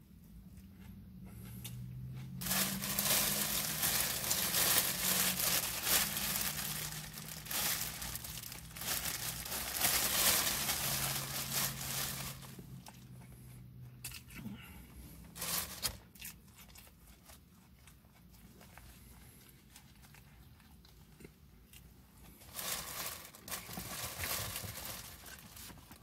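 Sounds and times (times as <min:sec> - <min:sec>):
plastic wrapping crinkling: 0:02.4 - 0:12.9, 0:15.4 - 0:16.1, 0:22.4 - 0:26.0.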